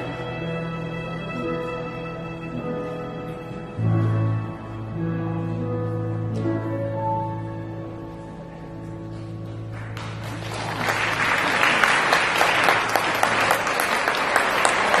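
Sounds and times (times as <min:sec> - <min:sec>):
audience applause: 0:09.7 - 0:15.0.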